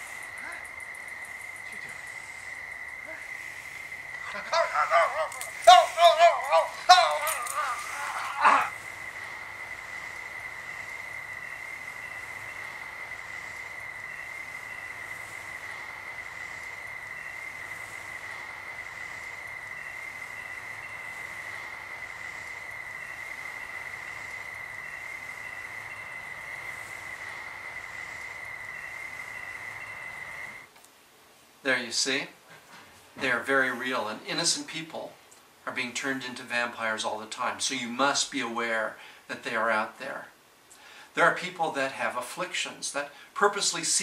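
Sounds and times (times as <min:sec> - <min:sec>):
cricket high trill: 0:00.0 - 0:30.7
short cricket chirps: 0:00.0 - 0:30.7
hiss: 0:01.6 - 0:04.5, 0:05.2 - 0:30.7.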